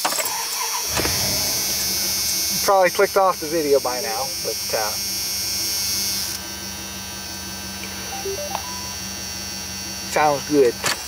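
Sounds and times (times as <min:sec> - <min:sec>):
engine idling drone from inside cab: 0:00.9 - 0:08.1.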